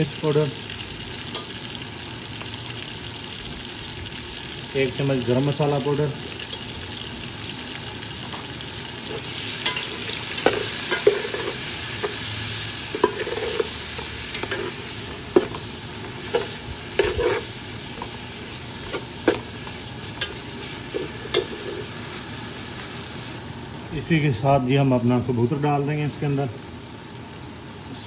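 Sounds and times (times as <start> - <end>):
masala sizzling in hot oil: 0.0 - 28.0
metal spatula scraping pot: 9.0 - 22.0.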